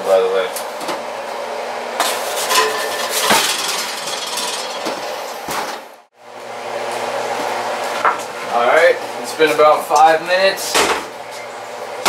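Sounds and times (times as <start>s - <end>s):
wooden peel scraping oven rack: 2.0s - 5.9s.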